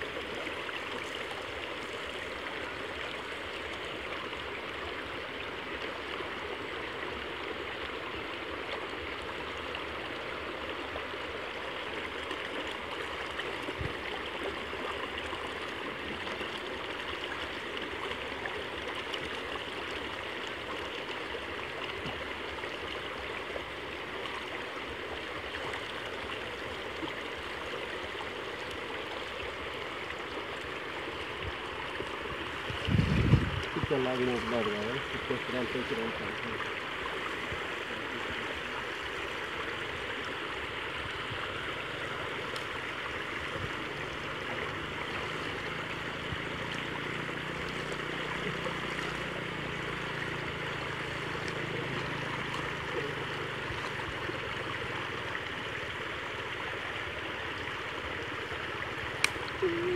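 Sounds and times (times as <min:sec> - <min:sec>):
creek water rushing: 0:00.0 - 0:59.9.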